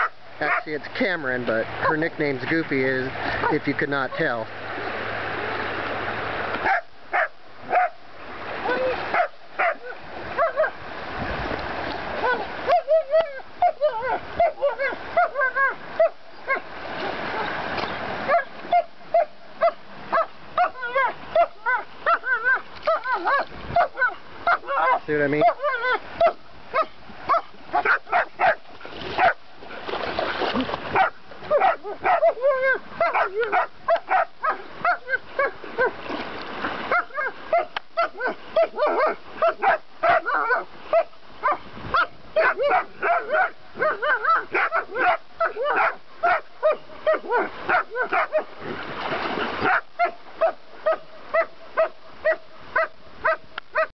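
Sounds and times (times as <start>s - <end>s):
splashing water: 0.0s - 53.9s
dog yipping and whining: 8.6s - 10.7s, 12.2s - 16.6s, 18.3s - 28.6s, 31.0s - 35.9s, 36.9s - 48.4s.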